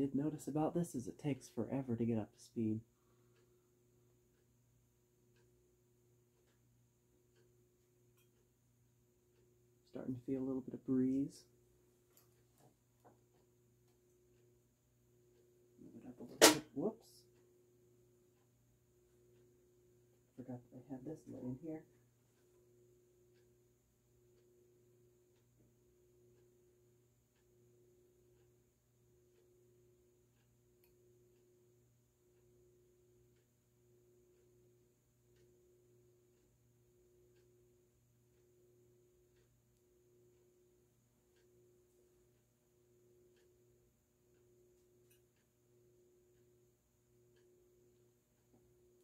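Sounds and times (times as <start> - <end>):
faint ticks: 32.3 - 49.0.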